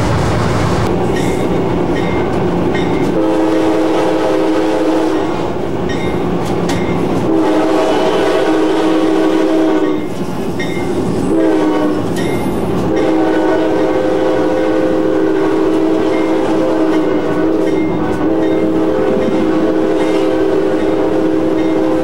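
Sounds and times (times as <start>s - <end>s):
moving train running noise: 0.0s - 22.0s
locomotive air horn blasts: 3.0s - 5.5s, 7.2s - 10.1s, 11.3s - 12.1s, 12.8s - 22.0s.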